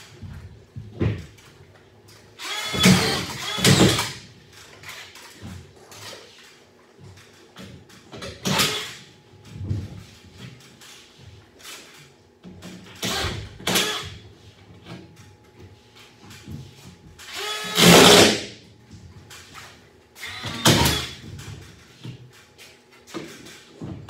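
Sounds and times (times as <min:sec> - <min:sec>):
screw gun driving screws: 0:02.4 - 0:04.2, 0:17.2 - 0:18.4.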